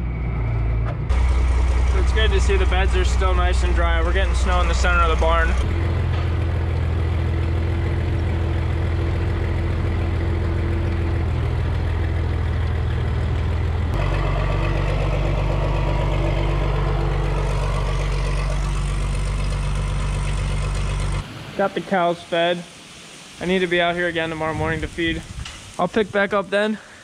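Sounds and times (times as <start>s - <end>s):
feed mixer drone: 0.0s - 21.2s
tractor engine under load: 0.6s - 21.2s.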